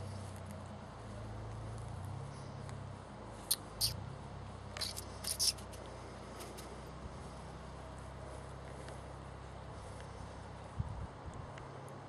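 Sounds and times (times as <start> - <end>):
steady low hum: 0.0 - 12.0
squeaky toy clicks: 4.8 - 5.7.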